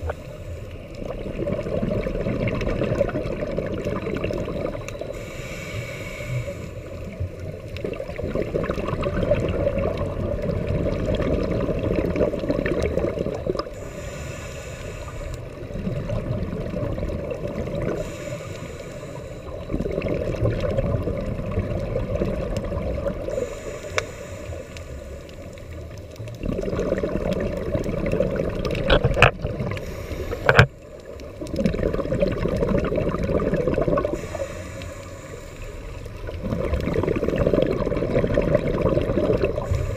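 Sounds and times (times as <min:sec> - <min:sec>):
exhaled bubbles gurgling: 0:00.0 - 0:39.9
regulator inhalation hiss: 0:05.0 - 0:07.3, 0:13.7 - 0:15.7, 0:17.9 - 0:19.8, 0:23.2 - 0:25.9, 0:29.7 - 0:30.9, 0:34.0 - 0:36.3, 0:39.5 - 0:39.9.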